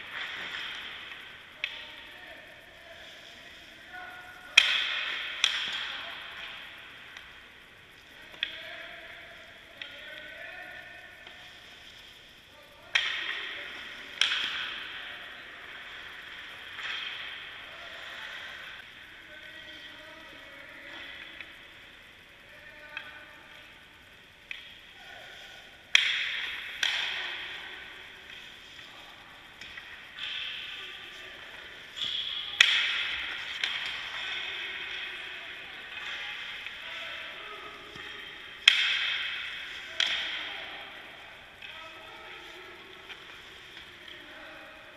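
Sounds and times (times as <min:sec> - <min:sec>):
hockey stick striking puck: 0:04.5 - 0:06.6, 0:12.9 - 0:15.0, 0:25.9 - 0:27.6, 0:32.0 - 0:35.0, 0:37.8 - 0:40.5.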